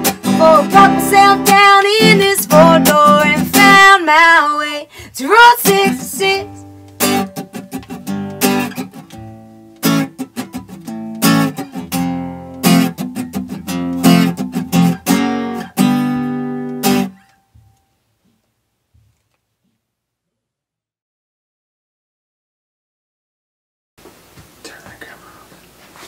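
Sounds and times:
acoustic guitar strumming: 0.0 - 17.8.

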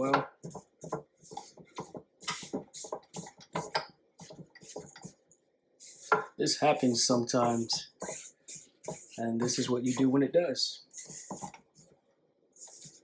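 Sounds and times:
spatula scraping a metal bowl: 5.8 - 10.2, 10.9 - 11.9.

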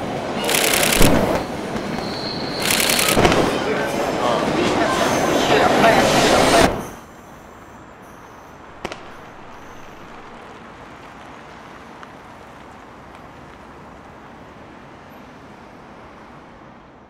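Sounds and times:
traffic road noise hum: 0.0 - 17.0
sharp click: 0.5 - 1.4, 2.6 - 3.3.

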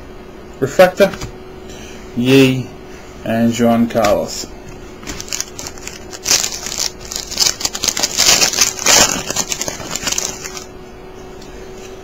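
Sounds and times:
plastic wrapper crinkling: 5.0 - 10.7.

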